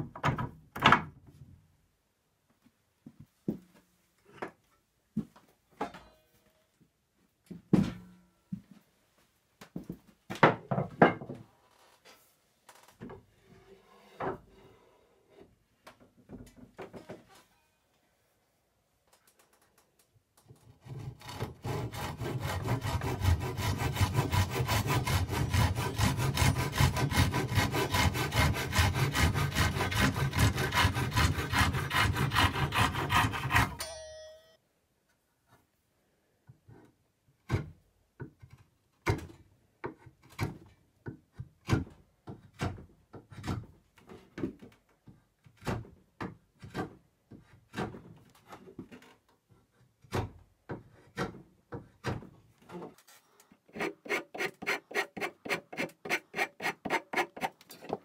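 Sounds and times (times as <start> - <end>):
hand saw cutting wood: 20.7 - 33.9, 52.8 - 58.0
spokeshave shaving wood: 20.8 - 33.8, 53.7 - 58.0
short ring: 33.7 - 34.6.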